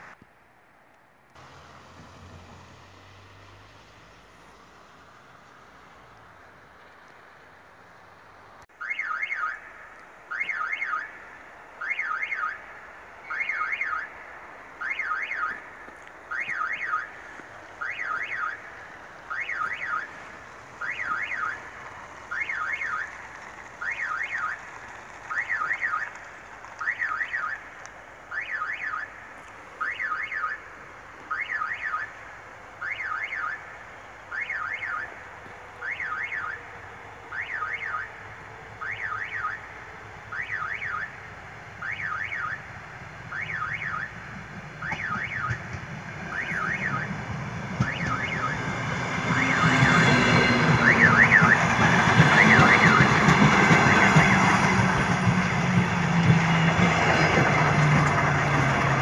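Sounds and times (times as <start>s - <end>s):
warbling crossing warning tone: 17.8s - 21.7s, 22.3s - 23.2s, 43.3s - 59.0s.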